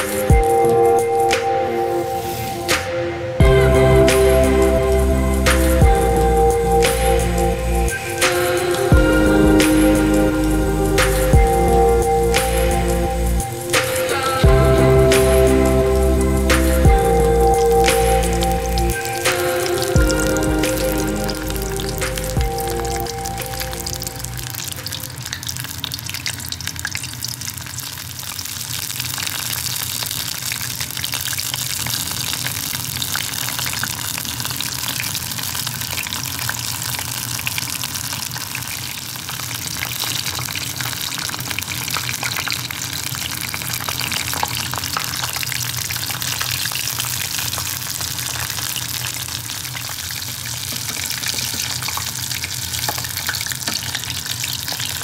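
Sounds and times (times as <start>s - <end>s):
deep-frying sizzle with crackles: 18.6s - 55.0s.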